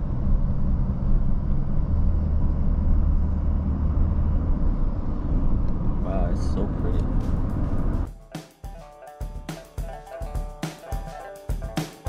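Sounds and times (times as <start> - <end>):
low hum: 0.0 - 8.1
engine and road rumble: 0.0 - 8.4.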